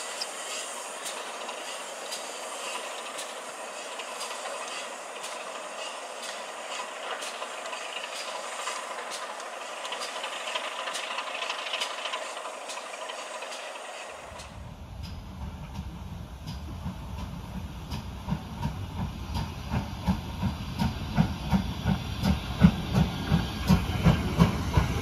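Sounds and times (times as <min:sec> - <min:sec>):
wheels clicking over rail joints: 0:00.0 - 0:15.8
steam train hissing: 0:00.0 - 0:25.0.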